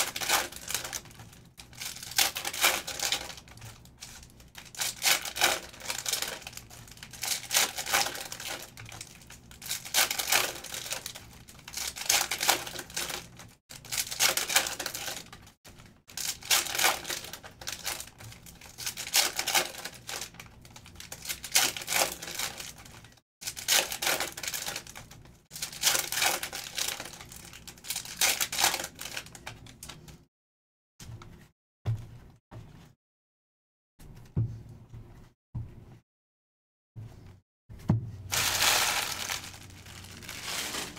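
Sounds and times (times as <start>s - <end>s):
card pack wrappers ripping: 0.0s - 30.1s, 38.3s - 40.9s.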